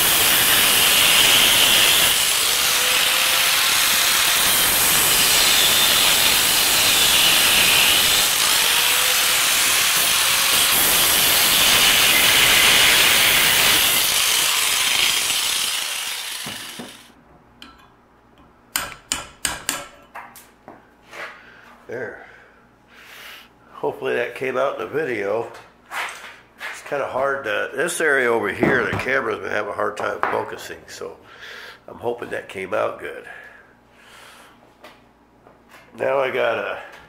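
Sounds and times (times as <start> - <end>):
angle grinder cutting metal: 0.0 - 17.2.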